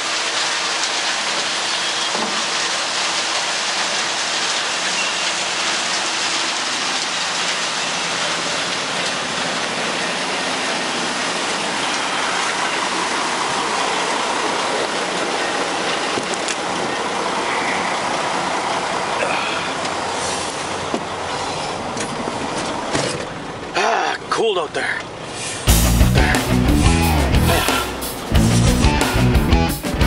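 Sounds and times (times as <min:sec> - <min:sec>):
wood chips pouring: 0:00.0 - 0:19.2
diesel engine hum: 0:00.0 - 0:30.0.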